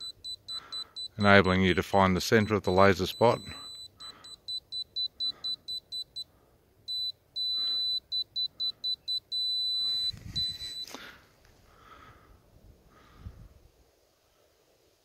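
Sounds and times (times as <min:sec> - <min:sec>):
high-pitched receiver beeping: 0:00.0 - 0:06.3, 0:06.9 - 0:11.0.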